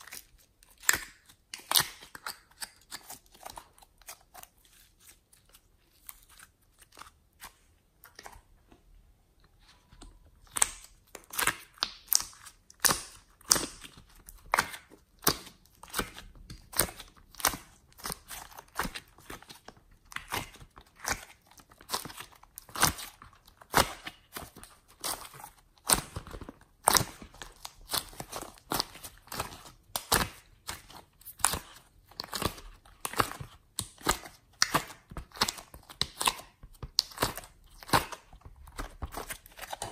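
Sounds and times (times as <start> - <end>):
slime clicking and popping: 10.5 - 25.1, 25.8 - 39.9.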